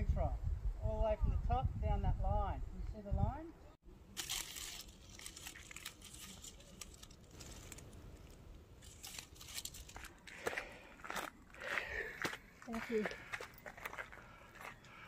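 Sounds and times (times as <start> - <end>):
leaves rustling and crackling: 3.9 - 11.3.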